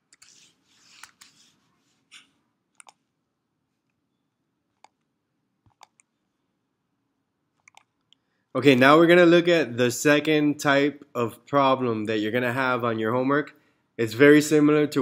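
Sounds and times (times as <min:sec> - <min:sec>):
computer mouse clicks: 0:02.1 - 0:03.0, 0:04.8 - 0:06.2, 0:07.6 - 0:08.2.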